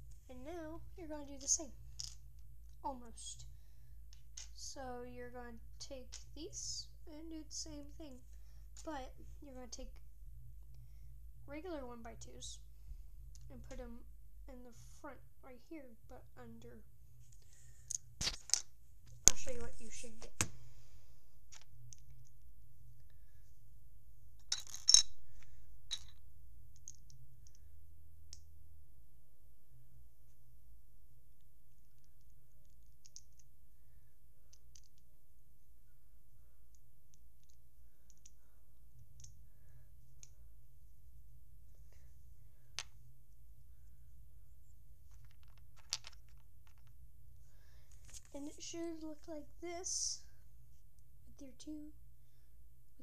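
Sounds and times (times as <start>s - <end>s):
plastic bricks clicking together: 25.9s - 27.6s, 32.2s - 33.5s, 34.5s - 35.0s, 37.1s - 38.4s, 45.1s - 46.9s.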